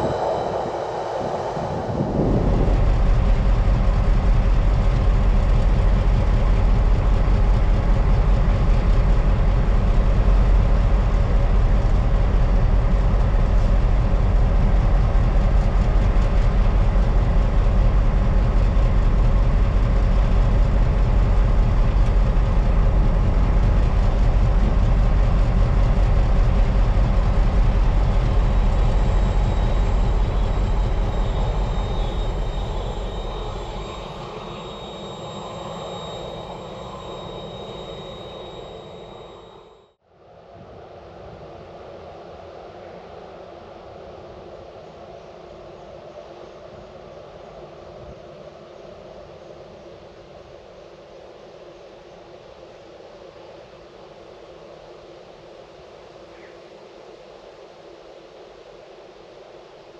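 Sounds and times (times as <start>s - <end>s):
train rumbling on rails: 0.0s - 39.9s.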